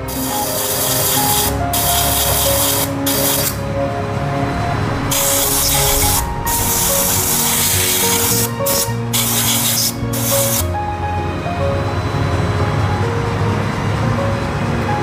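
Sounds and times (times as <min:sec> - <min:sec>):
compressed air blow gun hissing: 0:00.0 - 0:03.6, 0:05.1 - 0:10.7.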